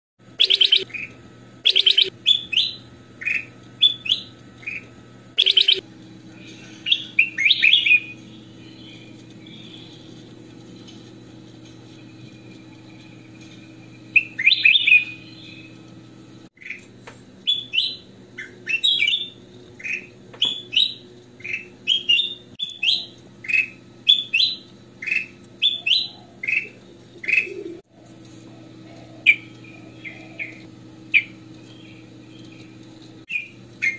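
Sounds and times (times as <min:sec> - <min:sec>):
steady low hum: 0:00.2 - 0:33.9
bird singing whistled notes: 0:00.4 - 0:04.8, 0:05.4 - 0:05.8, 0:06.9 - 0:10.0, 0:14.1 - 0:15.8.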